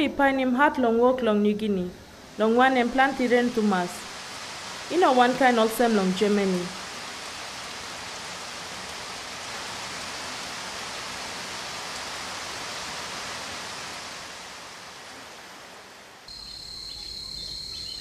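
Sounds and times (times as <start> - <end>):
heavy rain on leaves: 3.1 - 16.4.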